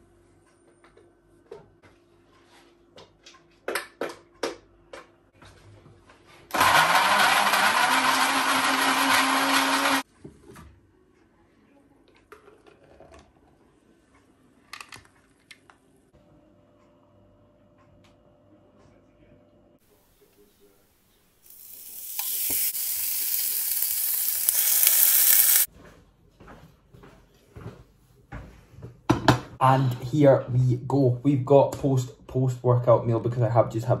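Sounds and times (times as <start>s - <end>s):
blender motor whining: 6.5s - 10.0s, 21.5s - 25.7s.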